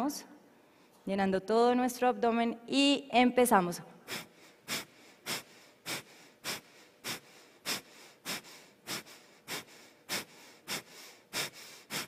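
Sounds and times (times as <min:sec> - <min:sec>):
forceful breaths out: 0:04.1 - 0:12.0.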